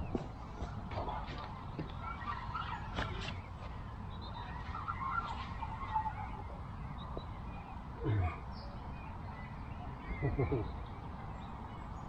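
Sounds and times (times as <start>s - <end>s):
waterfowl calling: 1.0s - 3.4s.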